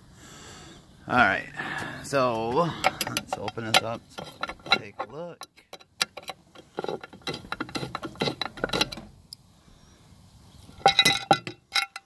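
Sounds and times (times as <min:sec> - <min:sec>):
clicks and knocks: 0:02.8 - 0:09.1.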